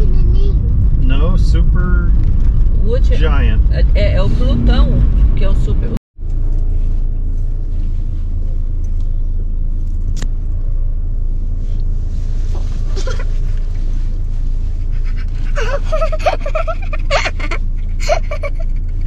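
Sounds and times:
car engine drone: 0:00.0 - 0:19.0
road noise: 0:00.0 - 0:19.0
child laughing and squealing: 0:14.9 - 0:19.0.

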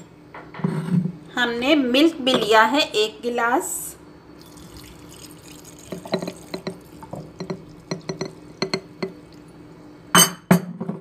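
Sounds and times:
milk pouring into jar: 0:04.4 - 0:09.5.

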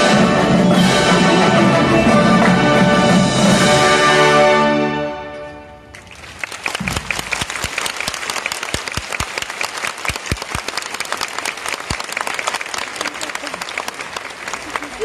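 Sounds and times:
brass marching band chord: 0:00.0 - 0:06.0
large audience applauding: 0:05.9 - 0:15.0.

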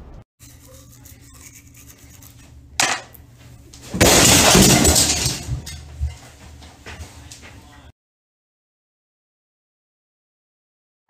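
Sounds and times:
toothbrush scrubbing: 0:00.4 - 0:03.3.

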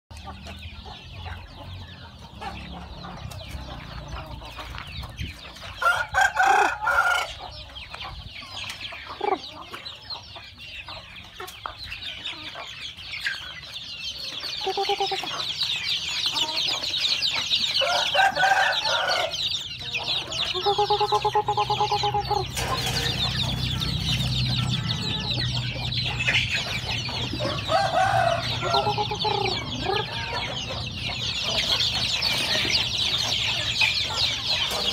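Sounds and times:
chickens clucking: 0:00.1 - 0:34.9
chicks peeping: 0:00.1 - 0:34.9
rooster crowing: 0:05.8 - 0:07.4, 0:17.8 - 0:19.4, 0:27.4 - 0:30.1.

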